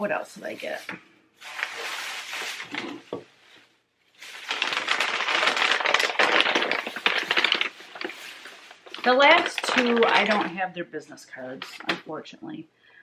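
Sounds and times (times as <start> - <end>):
objects clattering and rattling: 1.4 - 3.3, 4.2 - 10.6.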